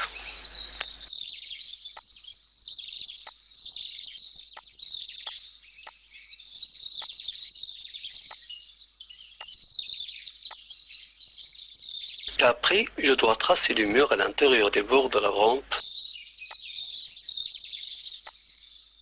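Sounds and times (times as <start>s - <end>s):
small birds chirping: 0.0s - 19.0s.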